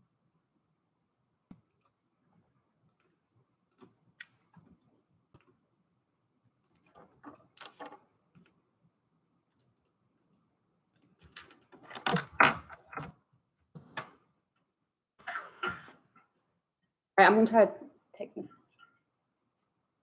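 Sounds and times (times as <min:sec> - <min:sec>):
faint clicks and taps: 0:01.5 - 0:02.0.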